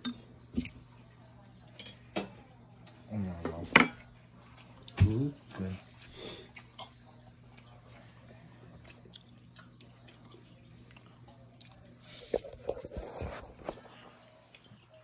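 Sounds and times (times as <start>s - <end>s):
person chewing: 8.7s - 15.0s.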